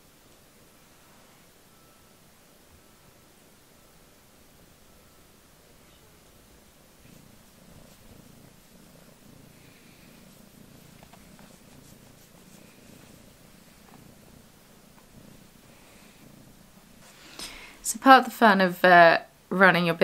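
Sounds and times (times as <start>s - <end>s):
cat purring: 4.3s - 19.5s.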